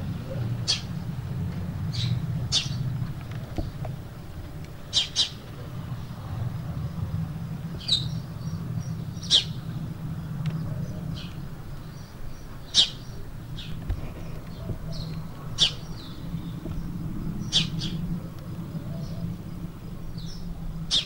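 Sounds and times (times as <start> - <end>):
low hum: 0.0 - 21.0
bird chirps: 1.9 - 2.9, 7.8 - 9.8, 14.5 - 18.0.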